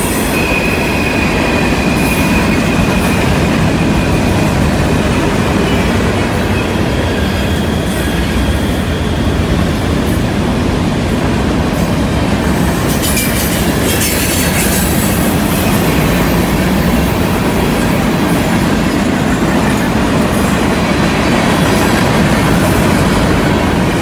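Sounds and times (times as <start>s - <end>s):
clickety-clack over rail joints: 0.0s - 24.0s
train wheels rumbling on rails: 0.0s - 24.0s
wheels squealing on curve: 12.8s - 16.5s.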